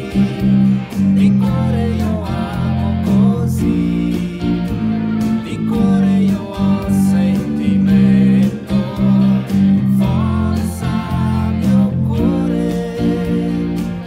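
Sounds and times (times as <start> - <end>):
band playing with singing: 0.0 - 14.0
electric bass walking line: 0.0 - 14.0.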